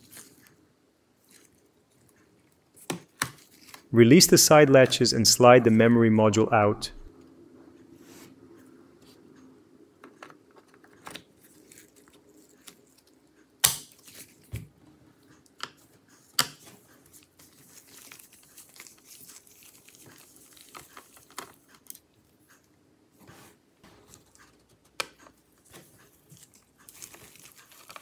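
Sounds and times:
gloves rustling: 16.6s - 22.1s, 25.5s - 28.0s.

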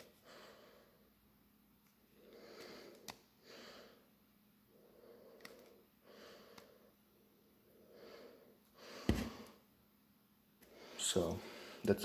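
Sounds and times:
soft nasal breathing: 1.9s - 9.7s.

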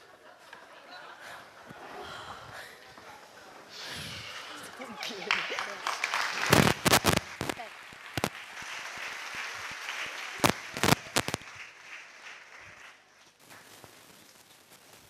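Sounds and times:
audience applauding: 4.1s - 13.8s
loud sharp cracks: 6.3s - 8.4s, 10.4s - 11.5s.

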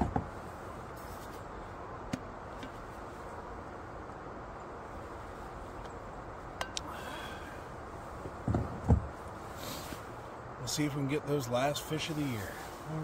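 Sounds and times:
outdoor hiss: 0.2s - 13.0s.

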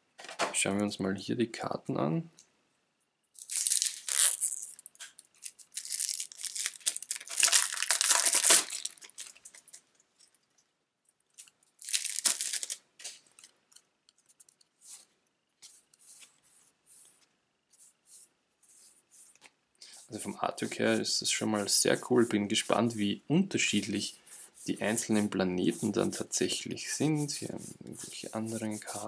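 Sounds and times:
cards being handled: 3.4s - 9.8s, 11.4s - 16.4s
plastic shrink-wrap tearing and crinkling: 3.4s - 9.8s, 11.8s - 12.8s.

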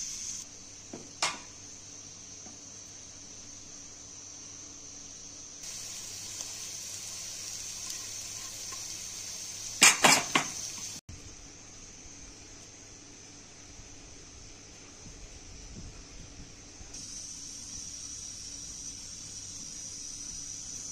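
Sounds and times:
onions sizzling in a pan: 0.0s - 11.0s, 17.0s - 20.9s.

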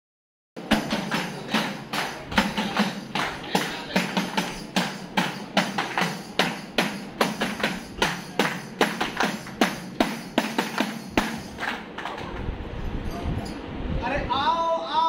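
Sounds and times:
tambourine beaten in rhythm: 0.6s - 11.7s.

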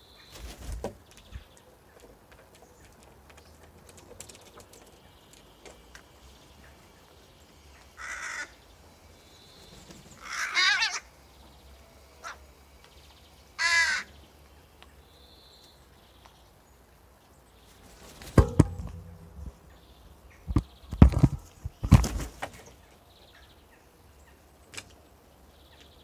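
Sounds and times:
raven calling: 7.8s - 8.7s, 10.2s - 11.2s, 12.1s - 12.5s, 13.6s - 14.2s
loud low wingbeats: 18.2s - 19.6s.

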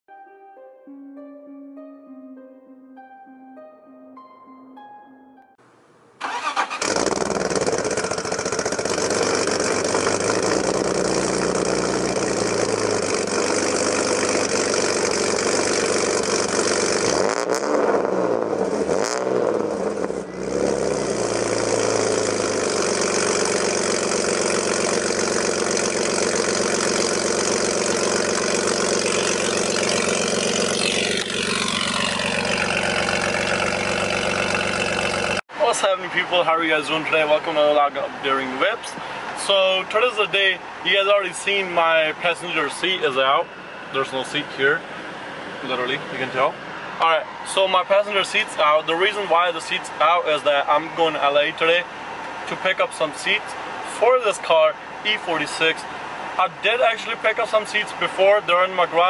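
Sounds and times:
car engine starting and revving: 6.2s - 35.4s.

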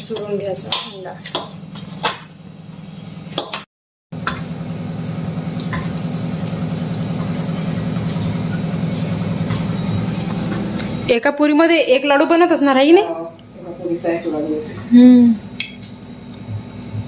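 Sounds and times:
low mechanical hum: 4.2s - 17.0s.

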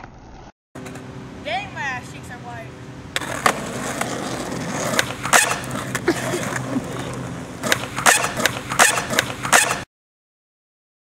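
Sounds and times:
skateboard wheels rolling on asphalt: 0.0s - 1.1s, 3.0s - 9.8s
skateboard clacking on pavement: 3.2s - 9.8s.

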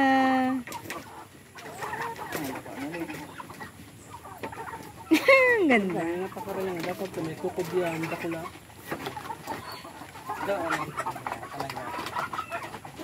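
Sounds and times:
chickens clucking and calling: 0.0s - 13.0s.

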